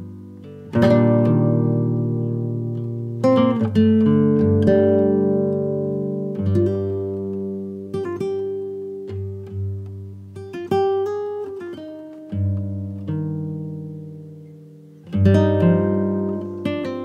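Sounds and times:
slow acoustic guitar: 0.0 - 17.0.

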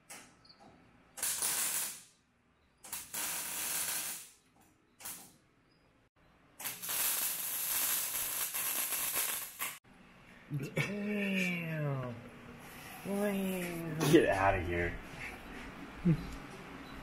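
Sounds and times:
welding arc crackling and hissing: 1.2 - 2.2, 2.8 - 4.4, 5.0 - 5.3, 6.6 - 9.8.

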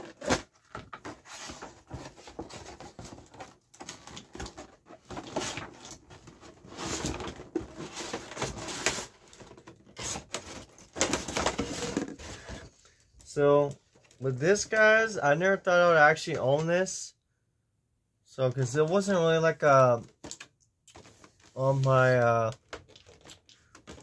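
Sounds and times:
cardboard rustling and scraping: 0.0 - 12.8.

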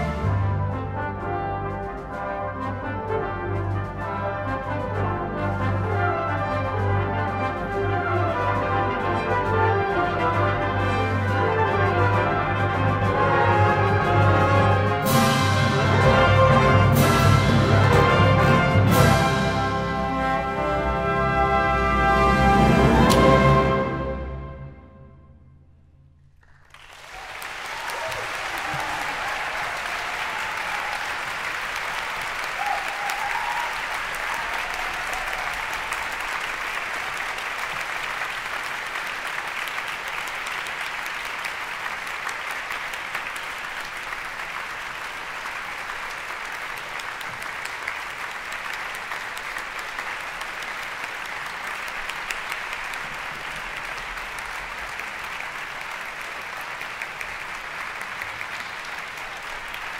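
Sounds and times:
audience applauding: 26.4 - 59.9.

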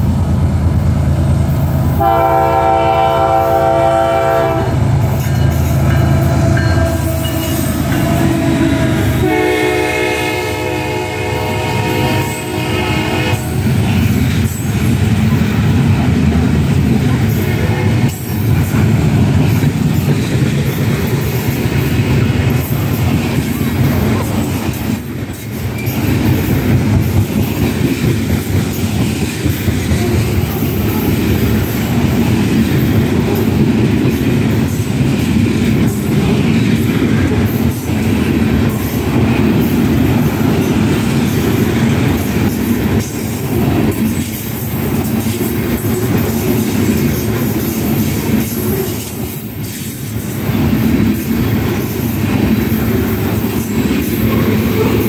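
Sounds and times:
freight train wheels rumbling: 0.0 - 55.0
wheels clacking over rail joints: 13.3 - 55.0.

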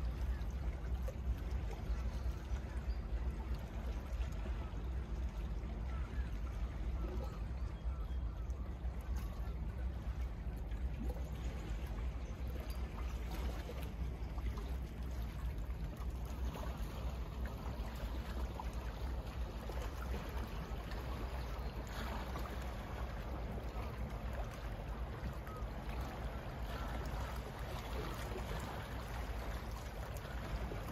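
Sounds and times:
steady low rumble: 0.0 - 30.9.

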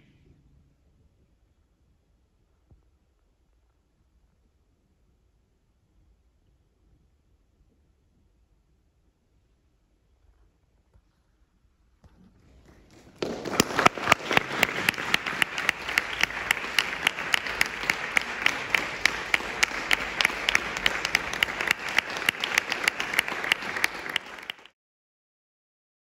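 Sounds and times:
audience applauding: 12.7 - 24.8.

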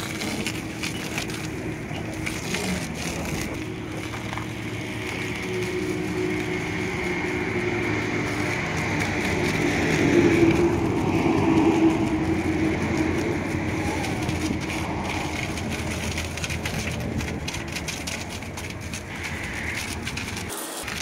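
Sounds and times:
high-pressure water jet hissing: 0.0 - 21.0.

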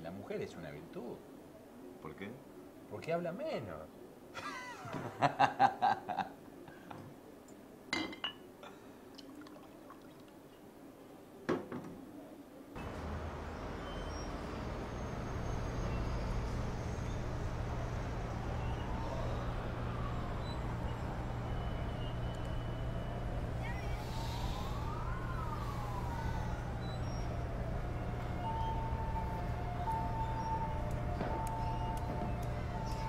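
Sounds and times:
faint siren wailing: 12.4 - 33.0
steady low hum: 12.8 - 33.0.

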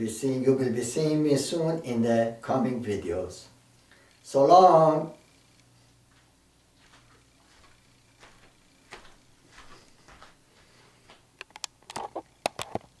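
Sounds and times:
shuffling footsteps: 5.8 - 11.3
sharp clicks and taps: 11.4 - 12.9.

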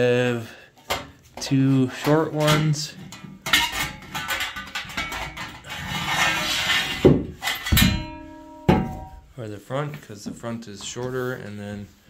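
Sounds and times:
metal brackets clinking and clanking: 0.8 - 9.3
heavy knocks: 7.1 - 9.3
metal rail ringing: 7.5 - 9.3.

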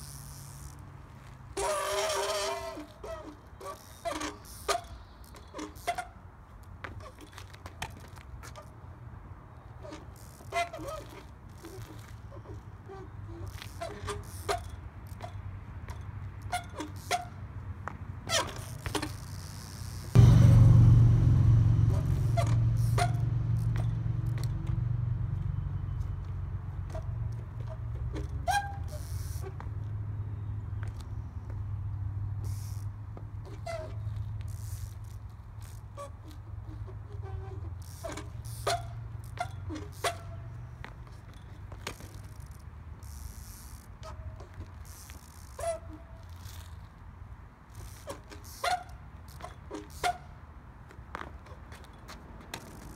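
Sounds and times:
brakes squeaking: 0.0 - 52.9
bike wheels knocking on asphalt: 17.8 - 24.9
loud low hum: 20.1 - 26.6
low rumble: 20.2 - 25.8.

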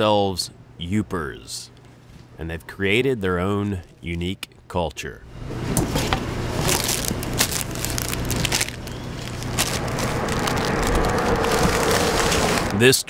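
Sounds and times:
low steady hum: 0.0 - 13.0
paper wrapping crinkling: 6.0 - 12.8.

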